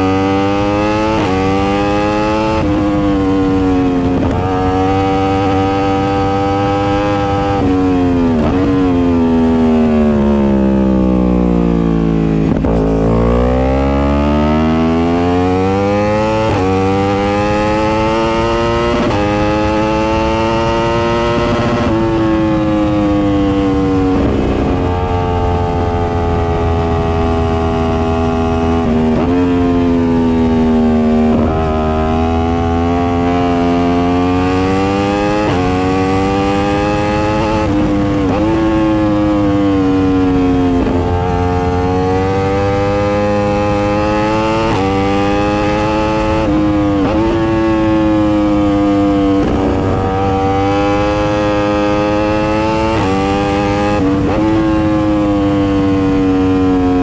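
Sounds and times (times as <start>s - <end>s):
motorbike engine revving through gears: 0.0s - 10.8s, 11.8s - 57.0s.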